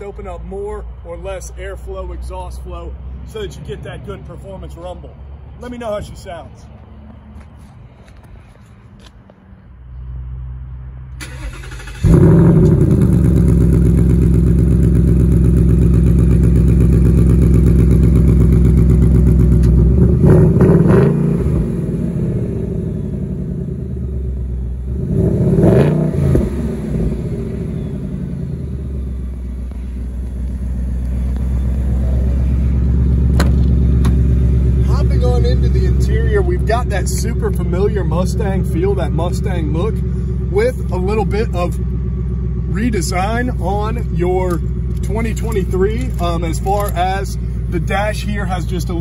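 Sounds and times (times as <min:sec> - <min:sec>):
car engine starting and idling: 0:09.9 - 0:49.0
car engine revving: 0:11.2 - 0:49.0.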